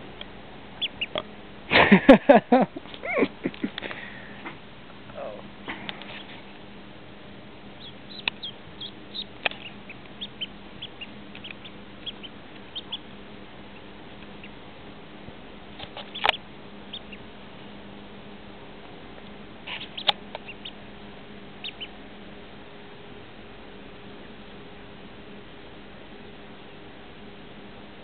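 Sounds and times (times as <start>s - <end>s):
duckling peeping: 0.8s - 1.4s, 7.6s - 14.8s, 15.7s - 17.4s, 19.6s - 20.9s, 21.5s - 22.1s, 26.2s - 26.9s.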